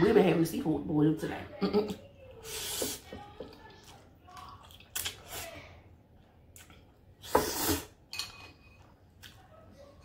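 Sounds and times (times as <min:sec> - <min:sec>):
chewing: 0:03.5 - 0:05.4, 0:06.2 - 0:07.1, 0:08.8 - 0:10.0.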